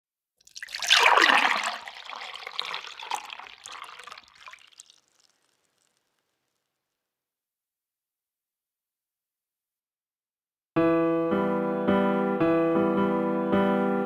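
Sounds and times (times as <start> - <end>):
liquid pouring and splashing: 0.4 - 6.8.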